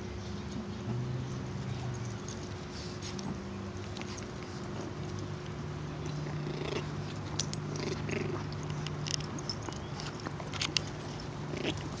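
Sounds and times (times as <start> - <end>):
steady low hum: 0.0 - 12.0
dog play growls: 5.8 - 12.0
puppies squeaking and yipping: 8.5 - 12.0.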